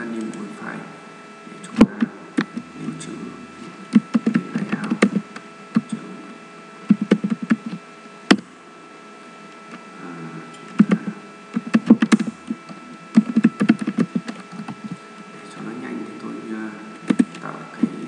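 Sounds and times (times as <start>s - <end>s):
computer keyboard typing: 3.9s - 5.2s, 6.9s - 8.4s, 10.8s - 12.3s, 13.1s - 15.0s, 17.1s - 17.4s.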